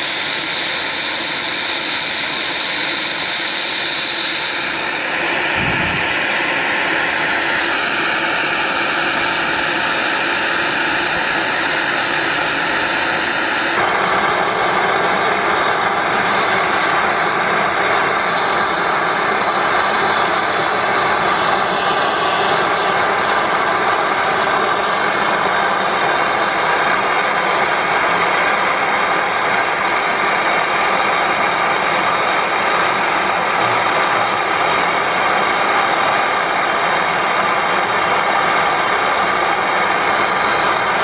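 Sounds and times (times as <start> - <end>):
blowtorch flame hissing: 0.0 - 20.1.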